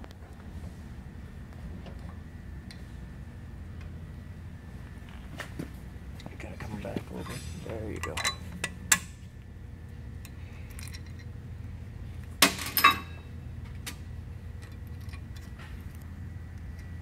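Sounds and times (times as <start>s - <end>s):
steady low hum: 0.0s - 17.0s
metal parts clinking: 7.2s - 9.0s, 10.6s - 11.3s, 12.4s - 13.2s.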